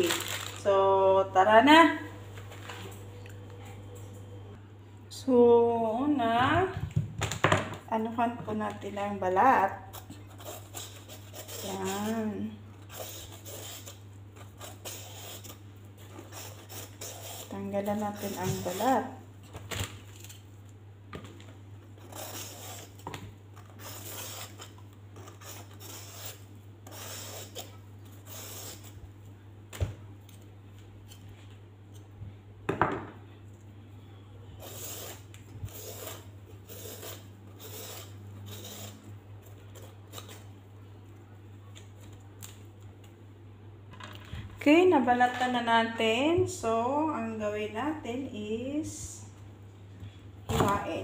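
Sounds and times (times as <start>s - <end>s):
knife scraping gourd skin: 9.9s - 19.1s, 22.0s - 29.0s, 34.6s - 40.5s.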